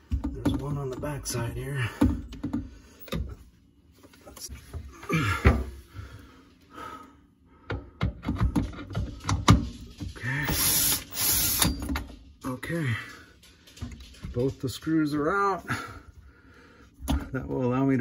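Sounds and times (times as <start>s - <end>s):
cordless drill running: 10.5s - 11.8s.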